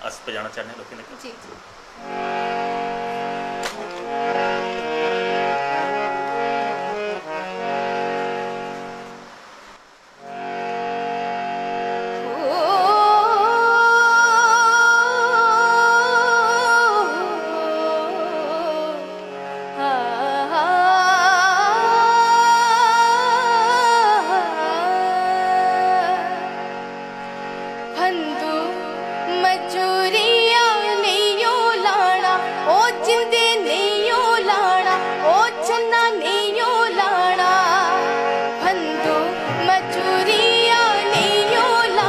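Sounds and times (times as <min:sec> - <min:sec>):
harmonium playing chords: 0:00.0 - 0:42.0
woman singing with vibrato: 0:12.1 - 0:26.9, 0:27.8 - 0:42.0.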